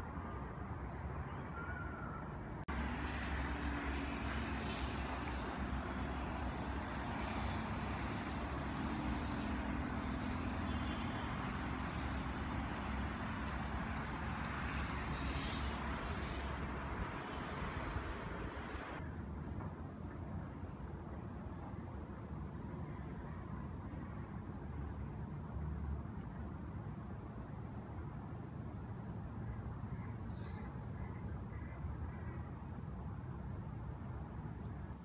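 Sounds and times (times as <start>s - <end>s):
distant engine drone: 1.6s - 19.0s
wind rumble on microphone: 2.2s - 24.5s.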